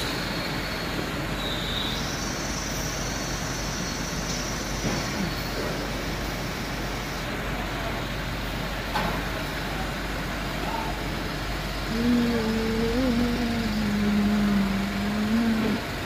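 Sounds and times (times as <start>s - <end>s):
air compressor running: 0.0s - 16.0s
low steady hum: 9.4s - 16.0s.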